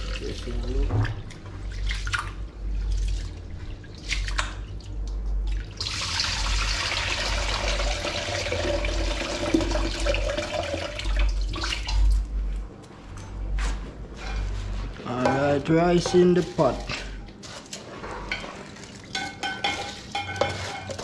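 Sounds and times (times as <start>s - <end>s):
water pouring into sink: 5.5s - 12.2s
rice swishing in metal pot: 15.9s - 21.0s.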